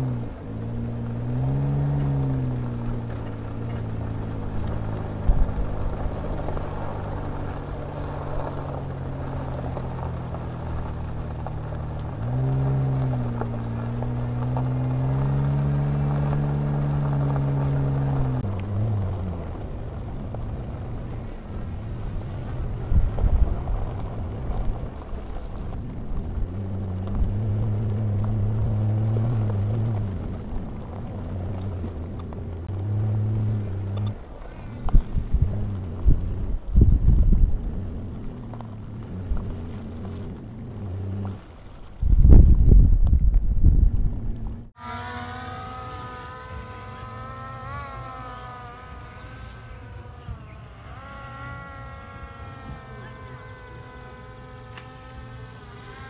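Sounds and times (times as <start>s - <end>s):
off-road vehicle engine humming: 0.0s - 56.0s.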